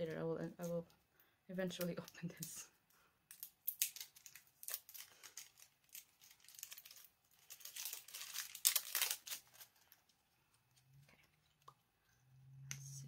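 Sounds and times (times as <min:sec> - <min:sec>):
packaging crinkling and tearing: 0:03.3 - 0:10.0.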